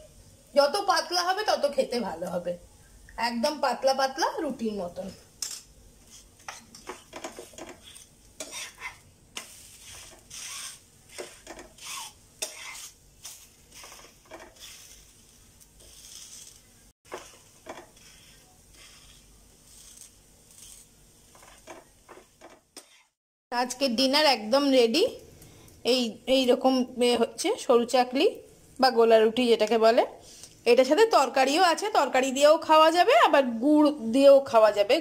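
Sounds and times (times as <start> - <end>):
faint sizzle of crepe cooking: 0.0 - 23.2
spatula scraping and tapping pan: 5.4 - 23.1.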